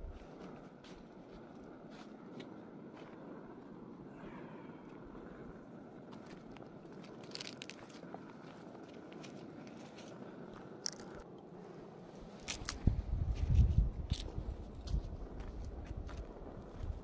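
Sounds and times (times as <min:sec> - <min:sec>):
faint crackles: 0:06.1 - 0:11.5
footsteps in dry grass and leaves: 0:07.0 - 0:11.2, 0:12.4 - 0:16.9.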